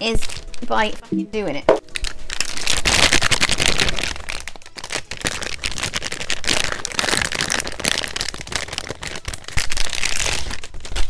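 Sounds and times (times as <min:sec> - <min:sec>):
plastic packaging crinkling: 0:00.0 - 0:00.9, 0:01.8 - 0:11.0.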